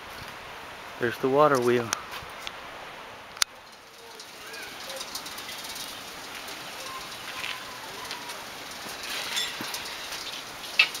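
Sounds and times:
water splashing off water wheel: 0:03.6 - 0:11.0.

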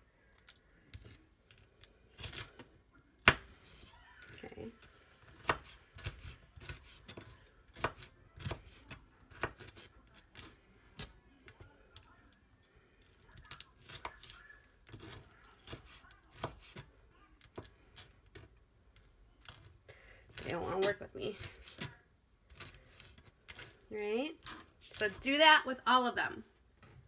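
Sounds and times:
knife chopping on cutting board: 0:05.4 - 0:10.5, 0:15.0 - 0:16.9.

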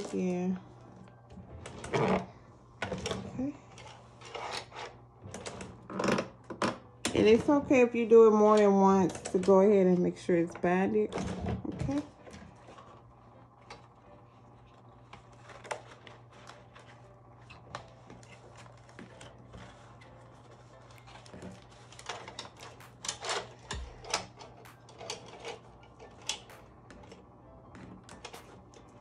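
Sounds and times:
low steady hum: 0:00.0 - 0:29.0
notebook clicks and rustles: 0:11.9 - 0:29.0.

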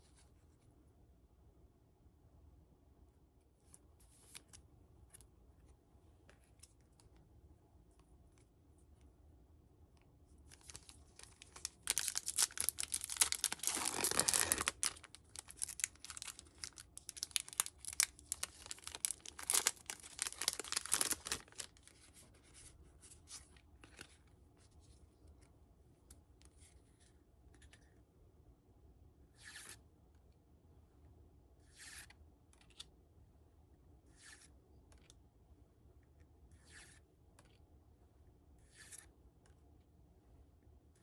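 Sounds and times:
cards rustling and clicking: 0:10.4 - 0:24.3
foil wrapper crinkling and tearing: 0:10.5 - 0:21.9.

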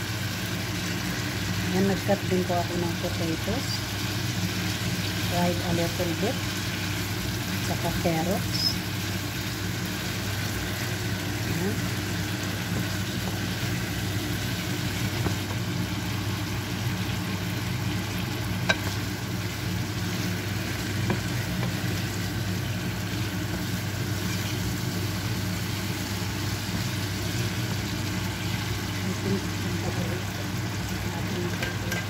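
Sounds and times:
food sizzling in a frying pan: 0:00.0 - 0:32.0
spatula tapping on pan: 0:18.6 - 0:18.9.

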